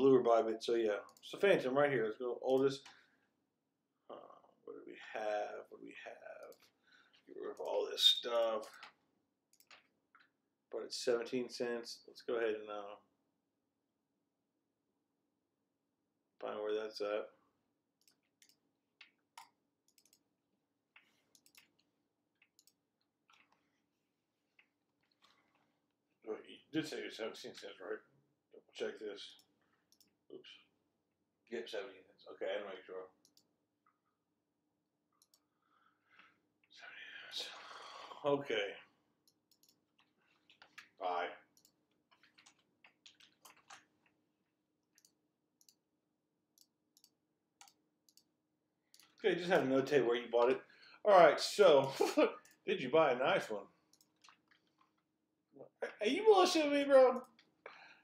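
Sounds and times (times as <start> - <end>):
faint computer mouse clicks: 18.0 - 20.2, 21.0 - 21.8, 39.2 - 39.8
mouse and keyboard clicks: 21.0 - 21.8.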